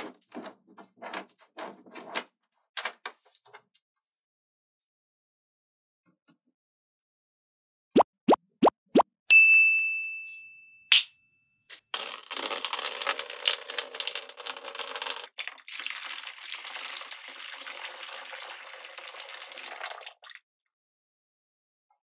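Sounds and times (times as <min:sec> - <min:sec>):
bright ding: 0:09.3 - 0:11.6.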